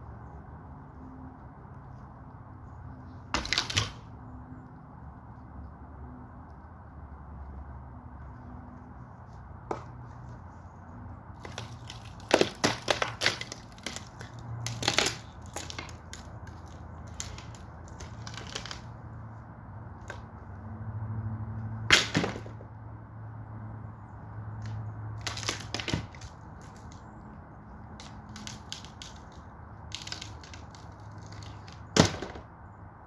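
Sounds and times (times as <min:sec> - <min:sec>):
wood cracking and snapping: 0:03.3 - 0:04.1, 0:11.4 - 0:19.0, 0:21.9 - 0:22.6, 0:24.6 - 0:27.0, 0:28.0 - 0:32.5.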